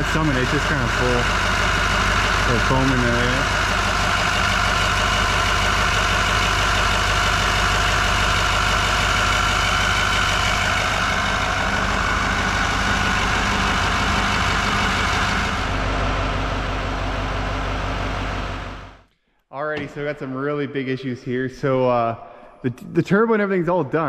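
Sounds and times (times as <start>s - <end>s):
diesel engine idling: 0.0s - 19.1s.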